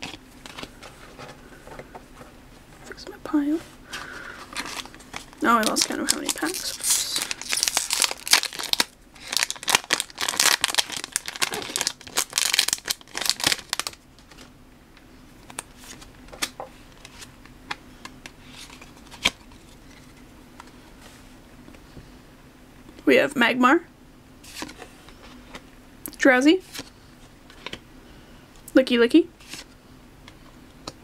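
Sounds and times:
foil wrapper crinkling and tearing: 4.0s - 14.5s.

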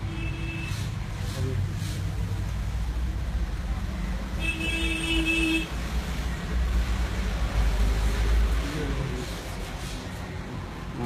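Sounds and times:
vehicle horn: 0.0s - 0.9s, 4.4s - 5.7s
low traffic rumble: 0.0s - 11.0s.

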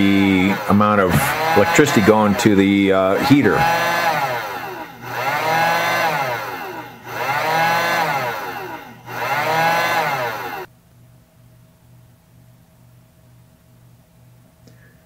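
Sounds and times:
heat gun fan whining: 0.0s - 10.7s.

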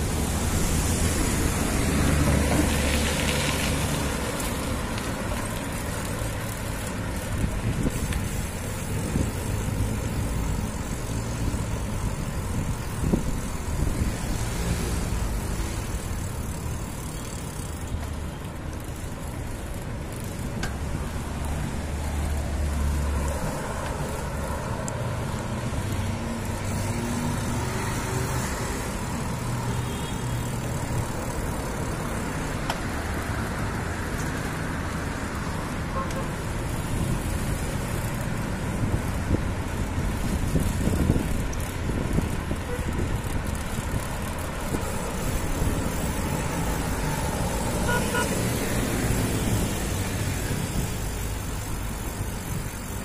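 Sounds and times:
vehicles going by: 0.0s - 53.0s.

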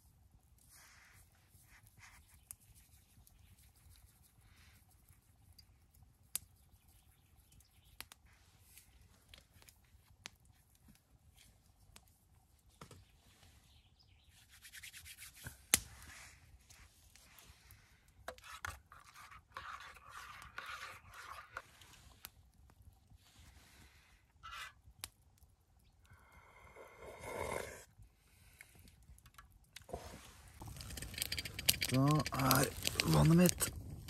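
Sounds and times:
rustling and scraping handling noise: 14.5s - 24.8s, 29.3s - 34.0s.

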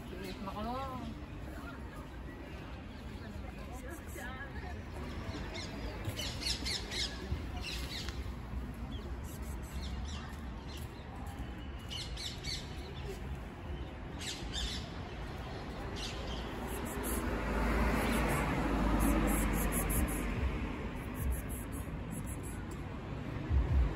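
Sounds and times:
small birds chirping: 5.3s - 20.4s.

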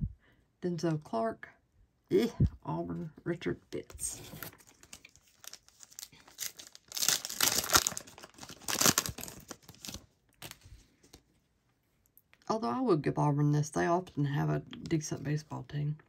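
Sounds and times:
foil wrappers crinkling: 4.3s - 10.6s.

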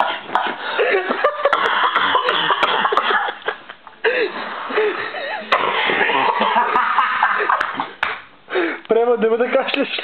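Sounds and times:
person coughing: 1.4s - 3.4s, 5.3s - 6.8s.

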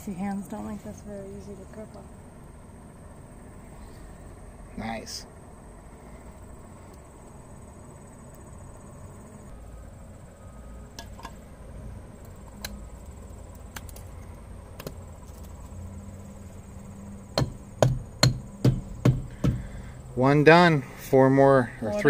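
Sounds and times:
insects trilling: 0.0s - 22.0s
mallet tapping metal hub: 17.4s - 19.6s.

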